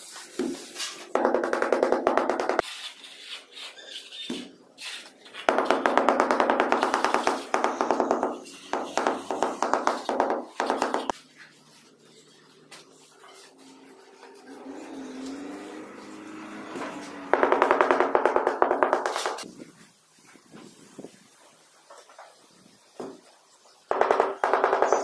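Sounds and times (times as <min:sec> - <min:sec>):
rubber mallet tapping on tiles: 0:17.4 - 0:19.4.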